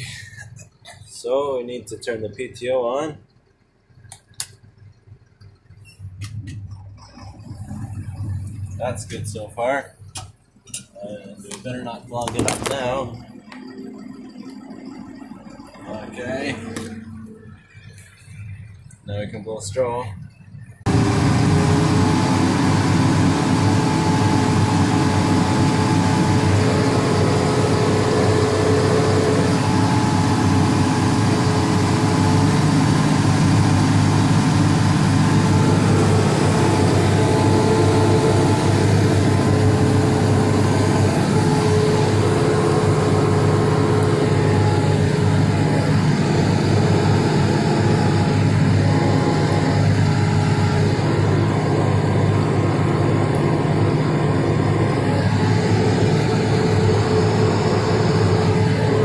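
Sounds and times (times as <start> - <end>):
constant machine tone: 0.0 - 59.0
tractor driving bale processor: 0.0 - 59.0
lower hum: 5.8 - 10.3, 20.0 - 59.0.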